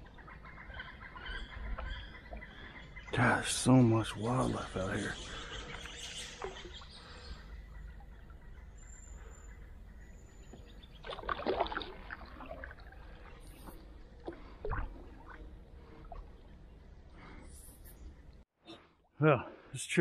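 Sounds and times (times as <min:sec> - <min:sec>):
paddle splashing water: 0:10.5 - 0:16.5.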